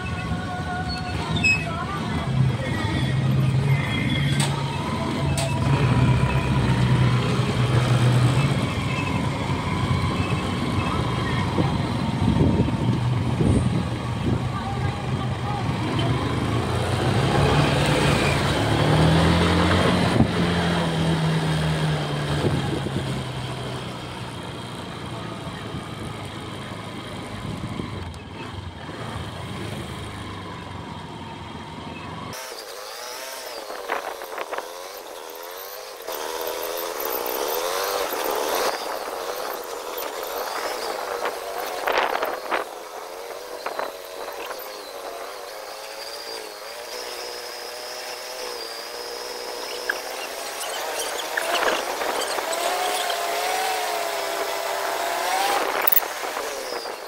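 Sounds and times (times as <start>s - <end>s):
motorcycle engine running: 0.0s - 32.4s
wind rumble on microphone: 10.0s - 15.7s, 38.5s - 45.2s.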